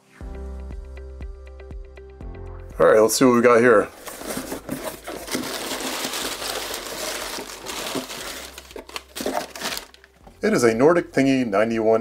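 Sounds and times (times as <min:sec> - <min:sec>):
cardboard box flaps scraping: 0:04.0 - 0:09.8
packing paper crinkling: 0:04.0 - 0:10.2.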